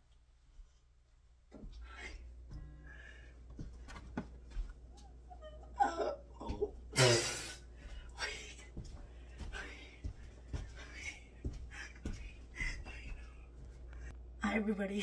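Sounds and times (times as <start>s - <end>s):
woman laughing: 5.3s - 7.1s.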